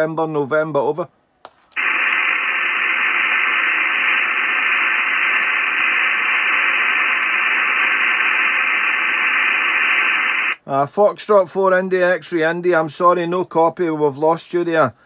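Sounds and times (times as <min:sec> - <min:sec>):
radio band noise hiss: 0:01.8 - 0:10.6.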